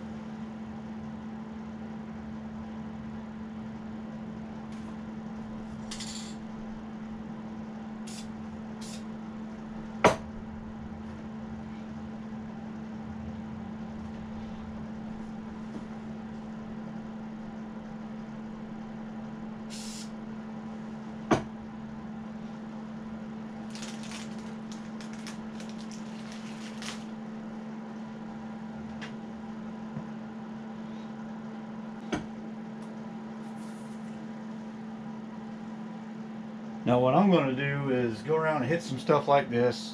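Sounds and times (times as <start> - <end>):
machine hum: 0.0 - 39.9
paper rustling and crinkling: 23.6 - 27.1.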